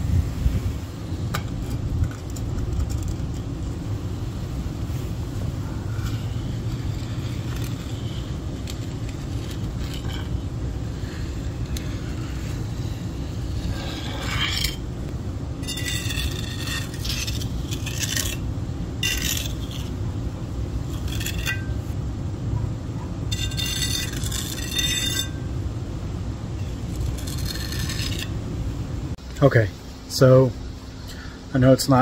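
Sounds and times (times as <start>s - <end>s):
metal trowel scraping concrete: 5.7s - 14.9s, 15.6s - 18.4s, 19.0s - 20.0s, 20.8s - 22.0s, 23.3s - 25.4s, 26.6s - 28.4s.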